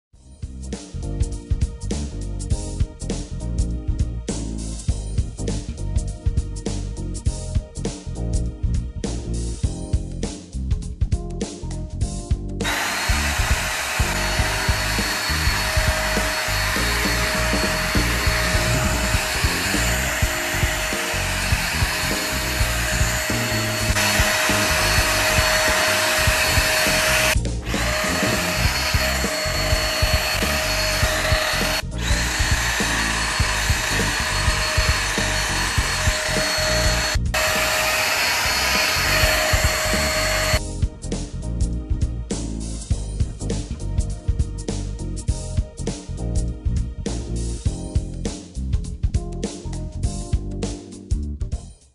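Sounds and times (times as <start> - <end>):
background music: 0.2 - 51.8
stick vacuum cleaner running: 12.6 - 40.6.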